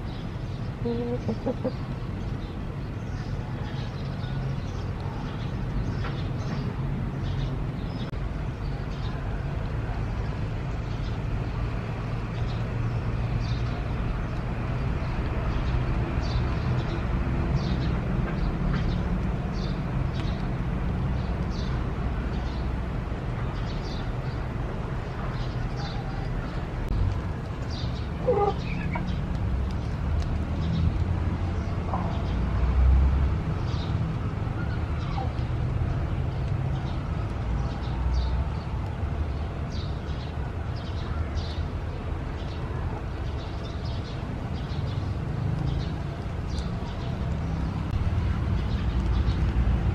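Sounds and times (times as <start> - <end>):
chicken calls: 0.8 - 1.9, 28.2 - 29.1.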